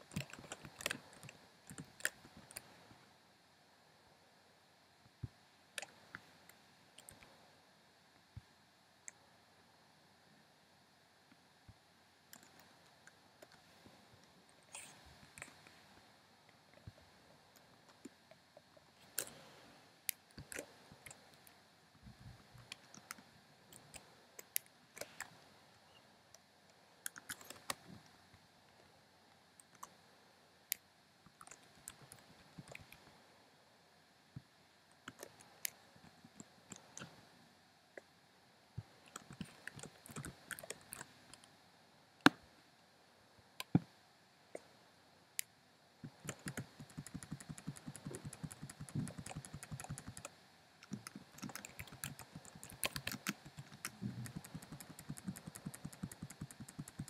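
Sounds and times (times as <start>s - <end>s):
computer keyboard keystrokes: 0.1s - 2.6s, 39.2s - 41.1s, 46.2s - 57.0s.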